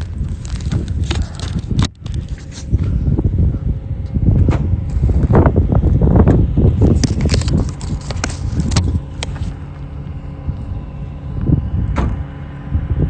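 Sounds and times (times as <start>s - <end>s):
footsteps crunching through dry brush: 0.0s - 2.8s, 6.8s - 11.2s
wind buffeting the microphone: 0.0s - 13.0s.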